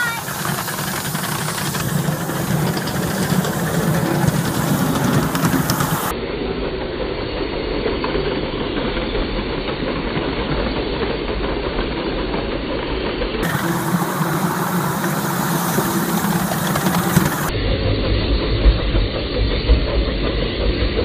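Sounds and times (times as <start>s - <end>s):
steam hiss: 0.0s - 6.1s, 13.4s - 21.0s
locomotive rumble: 0.0s - 21.0s
wheels clattering on rails: 0.0s - 21.0s.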